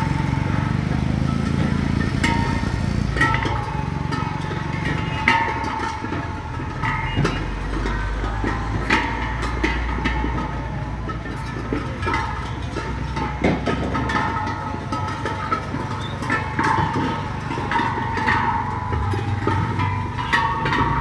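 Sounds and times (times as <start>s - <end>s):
small engine running: 0.0s - 6.7s
metal gas cylinders clanking: 0.0s - 21.0s.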